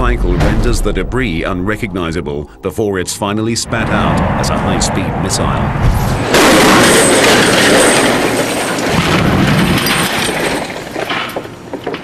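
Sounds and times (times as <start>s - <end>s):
car crashing onto concrete: 5.9s - 12.0s.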